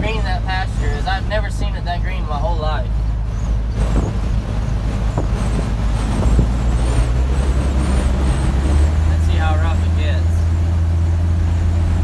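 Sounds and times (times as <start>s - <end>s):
truck engine and road noise: 0.0s - 12.0s
wind rushing: 3.8s - 9.1s.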